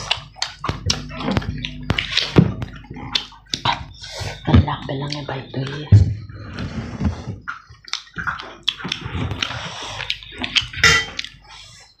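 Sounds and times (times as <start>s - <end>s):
lip smacks: 0.0s - 4.4s, 7.5s - 12.0s
wet chewing: 0.0s - 12.0s.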